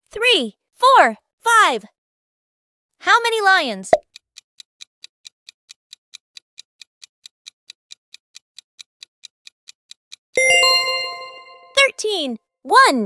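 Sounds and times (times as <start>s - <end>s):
clock ticking: 3.9s - 12.3s.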